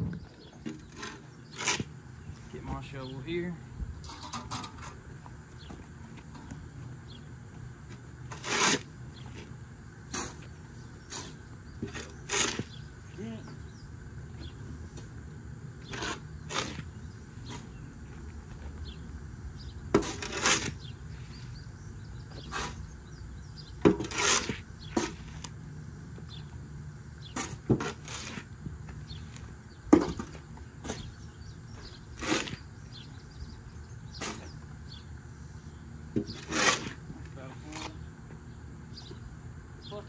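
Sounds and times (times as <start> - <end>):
steady low hum: 0.0 - 40.0
shovels scraping sawdust: 0.6 - 5.1, 7.9 - 13.6, 15.8 - 18.0, 19.9 - 21.6, 22.3 - 23.1, 23.8 - 25.6, 27.2 - 33.4, 34.0 - 35.0, 36.2 - 38.1.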